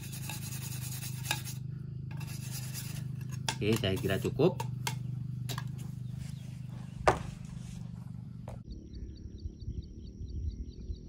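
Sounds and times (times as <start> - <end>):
wind rumbling on microphone: 5.8 - 11.0.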